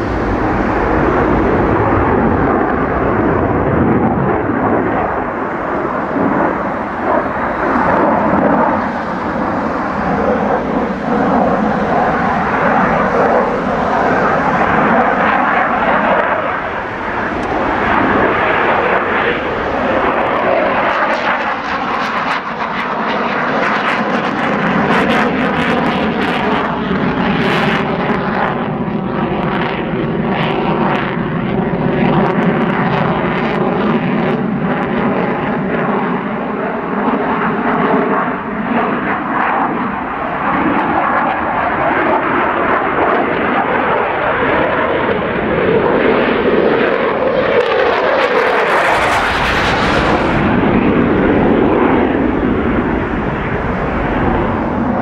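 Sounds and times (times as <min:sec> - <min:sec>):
deep low afterburner rumble: 0:00.0 - 0:22.0, 0:45.3 - 0:55.0
jet engine roaring: 0:00.0 - 0:55.0.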